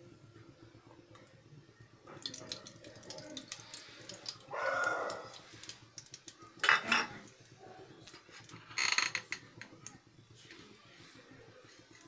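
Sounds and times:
oil trickling into metal pot: 0:01.1 - 0:09.9.

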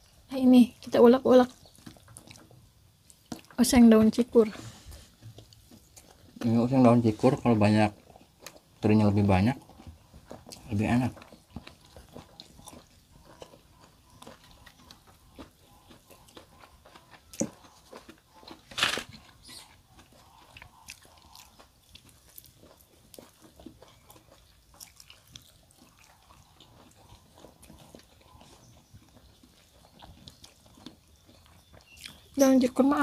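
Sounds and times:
chewing and crunching: 0:00.0 - 0:33.0
sharp noises: 0:10.4 - 0:23.4.

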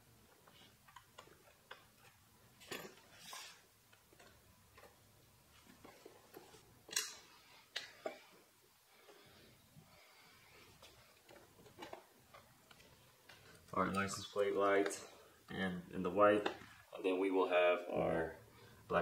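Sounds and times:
wiring clicks and rustles: 0:00.1 - 0:15.2.

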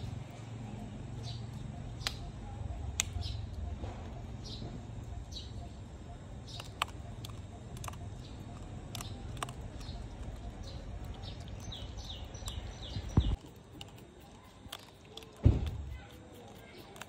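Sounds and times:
bird chirping: 0:00.0 - 0:15.2
sharp clicks: 0:02.9 - 0:03.4, 0:06.4 - 0:15.8.

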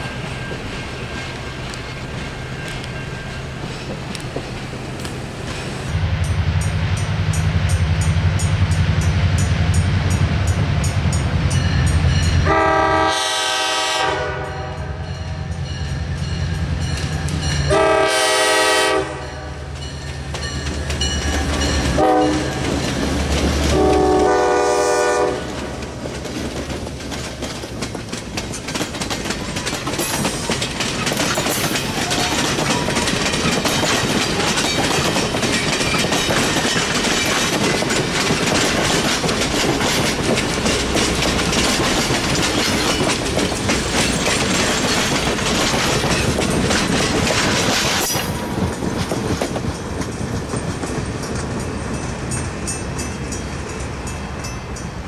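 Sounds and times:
train wheels clickety-clack: 0:00.0 - 0:14.3, 0:15.4 - 0:55.0
diesel locomotives rumbling: 0:00.0 - 0:55.0
locomotive horn chord: 0:12.4 - 0:15.1, 0:17.7 - 0:19.7, 0:22.0 - 0:22.6, 0:23.7 - 0:25.6.

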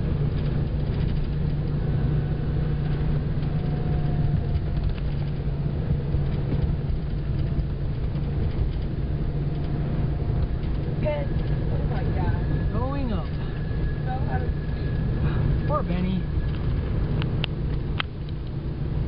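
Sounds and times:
vehicle engine and road rumble: 0:00.0 - 0:19.0.

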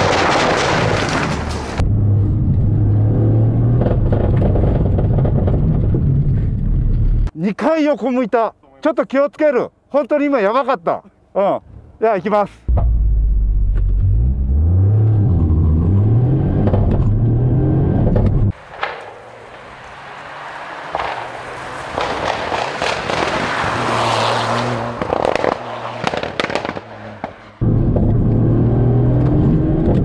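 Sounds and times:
exhaust popping and crackling: 0:03.6 - 0:07.3, 0:20.8 - 0:23.8, 0:24.9 - 0:28.5
car engine revving: 0:12.8 - 0:18.6, 0:19.3 - 0:30.0
car passing: 0:14.1 - 0:27.8.

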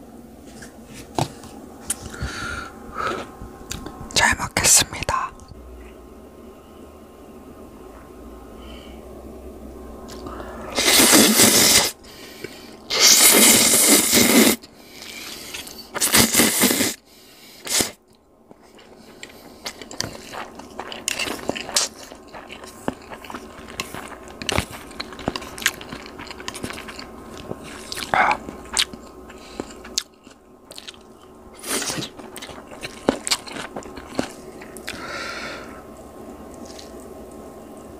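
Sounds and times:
wet squishing and scraping of noodles: 0:17.6 - 0:37.8.

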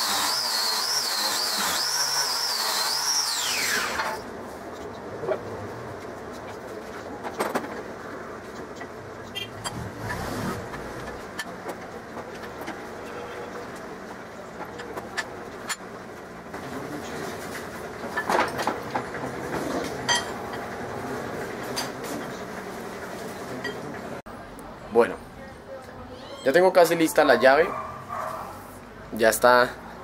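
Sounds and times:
wire brush grinder whirring: 0:00.0 - 0:04.2.

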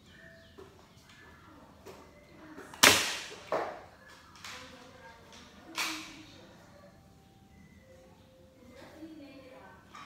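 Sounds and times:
toy blaster shot smack: 0:02.8 - 0:03.4.

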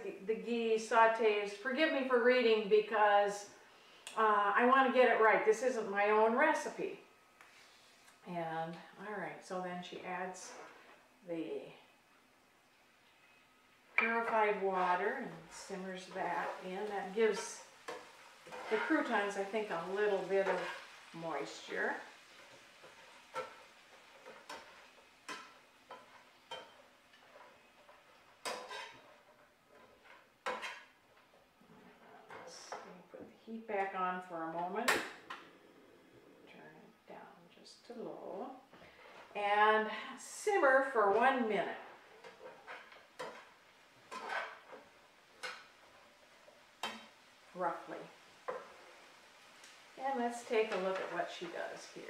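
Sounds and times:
faint simmer: 0:00.0 - 0:52.0
spatula scraping a skillet: 0:14.0 - 0:32.8, 0:38.8 - 0:39.4, 0:40.6 - 0:52.0.

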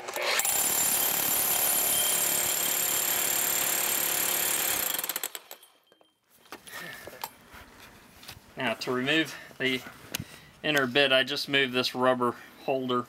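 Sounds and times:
hammer drill drilling concrete: 0:00.0 - 0:05.6.

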